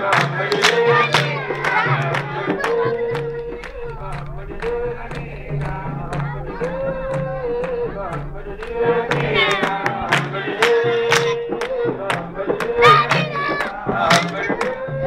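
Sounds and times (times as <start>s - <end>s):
steady drum beat: 0.0s - 15.0s
voices chanting long notes: 0.0s - 15.0s.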